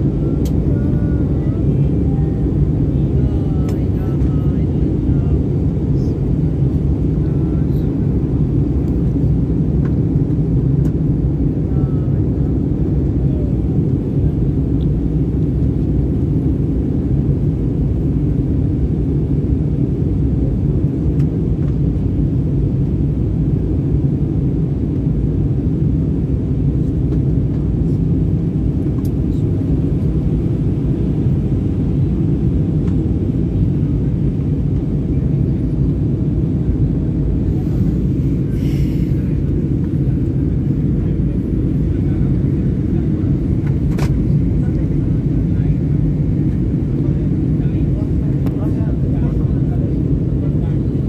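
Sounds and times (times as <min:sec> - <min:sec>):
jet engines rumbling: 0:00.0 - 0:51.0
rushing air: 0:37.5 - 0:39.4.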